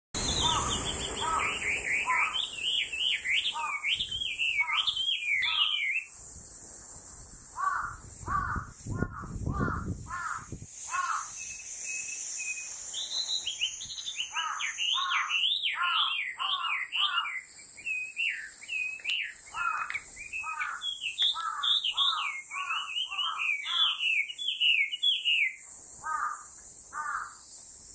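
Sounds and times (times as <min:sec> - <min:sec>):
bird singing whistled runs: 0:00.2 - 0:06.1, 0:11.0 - 0:25.6.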